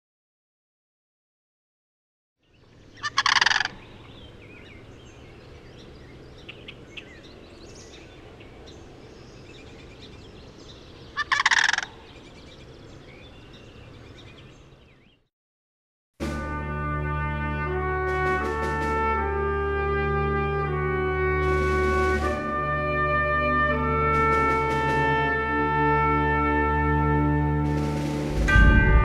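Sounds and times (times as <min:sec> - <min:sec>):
small birds chirping: 0:02.4 - 0:15.3
turkey gobbling: 0:03.0 - 0:04.2, 0:11.2 - 0:12.1.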